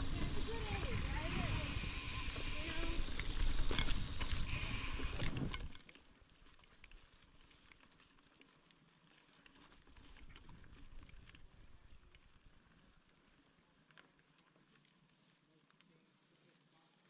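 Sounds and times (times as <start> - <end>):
wind noise on microphone: 0.0 - 5.8
tyres crackling over leaves: 0.0 - 17.0
small clicks: 2.1 - 12.4.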